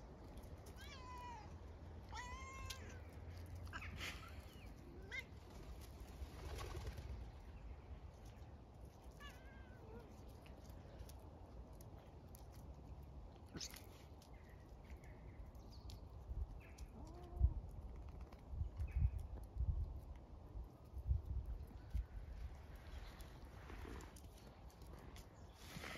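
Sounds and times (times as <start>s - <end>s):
small animal meow-like cries: 0.8s - 3.0s.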